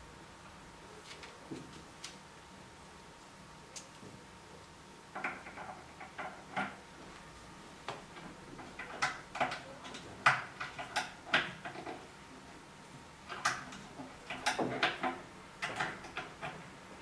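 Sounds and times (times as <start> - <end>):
wooden parts knocking and clicking: 13.3 - 16.6.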